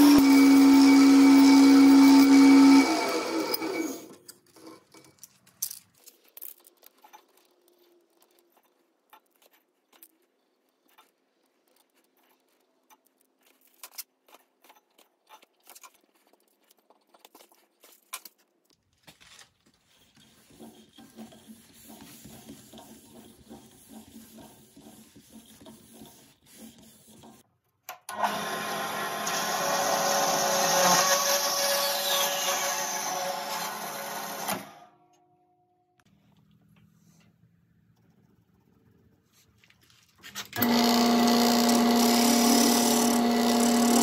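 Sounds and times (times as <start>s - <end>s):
faint steady rustle: 5.0s - 27.5s.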